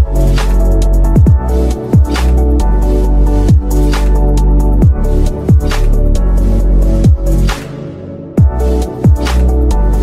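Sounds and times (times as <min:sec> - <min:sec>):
electronic music with deep bass: 0:00.0 - 0:10.0
bass kick sweeping down: 0:01.0 - 0:02.2.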